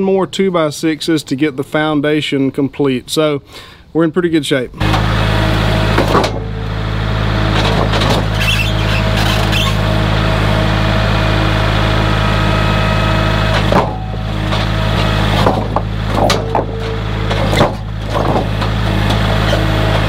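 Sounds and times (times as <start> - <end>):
diesel tractor engine running: 4.8 - 20.0
boards knocking: 13.5 - 19.4.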